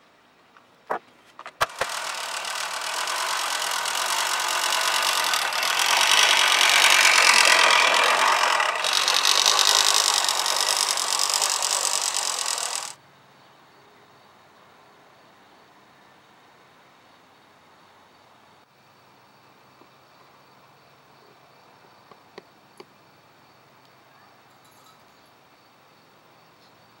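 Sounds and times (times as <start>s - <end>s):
sharp clicks: 1.4s - 13.0s
reel mower cutting grass: 1.6s - 13.0s.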